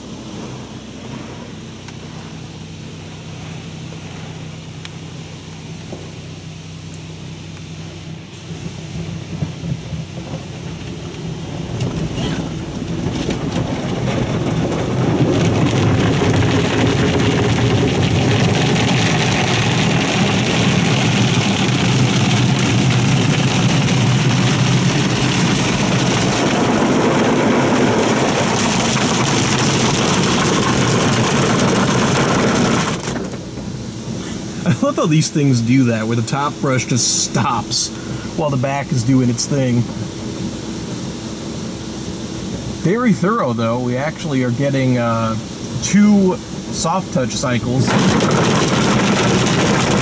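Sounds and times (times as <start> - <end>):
water spraying: 8.3 - 40.2, 42.9 - 50.0
car wash brushes scrubbing: 9.3 - 35.0.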